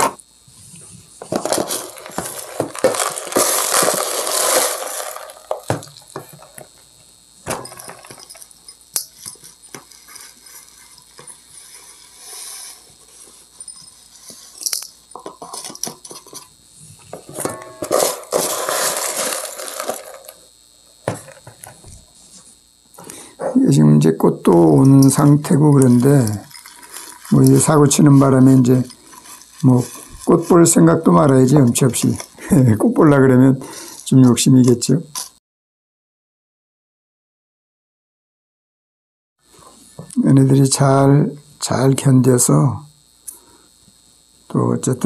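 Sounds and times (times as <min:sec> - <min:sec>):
gritty soil pouring into pot: 0:01.5 - 0:06.0, 0:18.0 - 0:20.3, 0:25.8 - 0:30.6.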